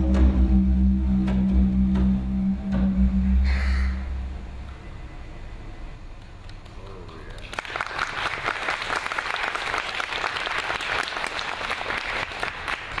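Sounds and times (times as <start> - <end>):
faint low didgeridoo drone: 0.0 - 6.8
audience applauding: 6.6 - 13.0.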